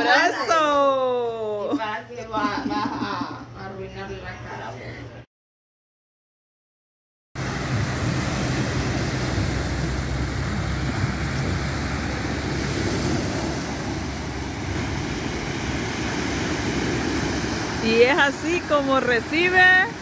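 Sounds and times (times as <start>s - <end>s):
surf breaking on pebble shore: 7.4s - 20.0s
wind rumble on microphone: 7.4s - 20.0s.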